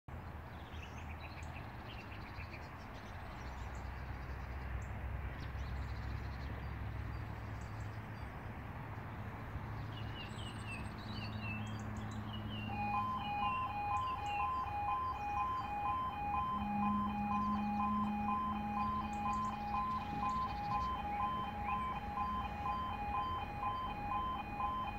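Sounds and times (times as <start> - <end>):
birds chirping: 9.7 - 24.9
two-tone crossing alarm: 12.3 - 24.9.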